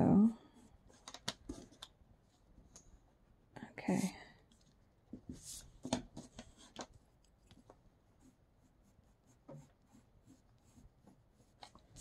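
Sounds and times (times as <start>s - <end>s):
pencil scratching on paper: 8.0s - 12.0s.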